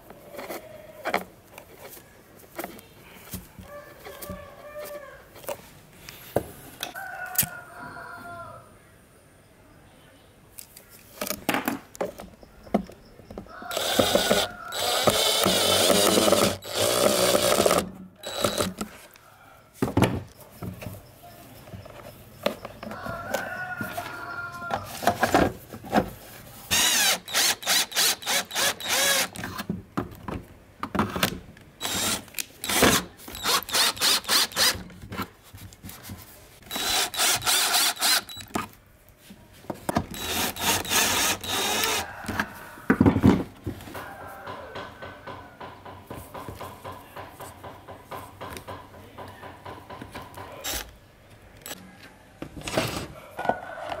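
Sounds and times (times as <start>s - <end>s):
cordless drill driving screws: 13.7s - 18.8s, 26.7s - 29.6s, 31.8s - 34.8s, 36.7s - 38.5s, 40.1s - 42.0s, 50.6s - 50.9s
workshop clicks and knocks: 42.3s - 50.9s.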